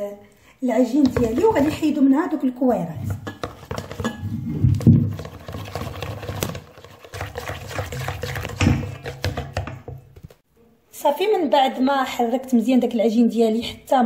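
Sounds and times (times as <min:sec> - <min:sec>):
whisk stirring wet dough: 0:03.1 - 0:10.4
whisk clicking against metal bowl: 0:03.2 - 0:04.2, 0:05.1 - 0:10.0.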